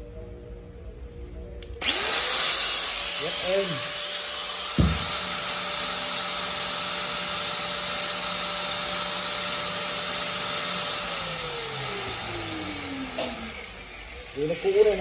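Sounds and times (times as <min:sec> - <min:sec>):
angle grinder running: 0:01.8 - 0:15.0
grinder spinning down: 0:01.8 - 0:15.0
sharp knock: 0:04.7 - 0:05.2.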